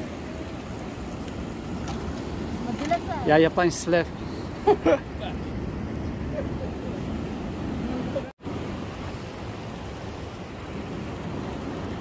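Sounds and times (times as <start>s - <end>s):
sea waves washing: 0.0s - 12.0s.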